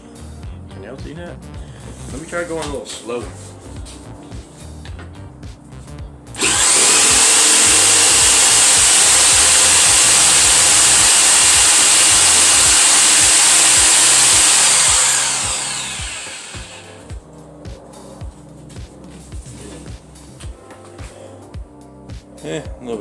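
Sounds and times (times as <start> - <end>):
jigsaw cutting wood: 6.4 - 17.1.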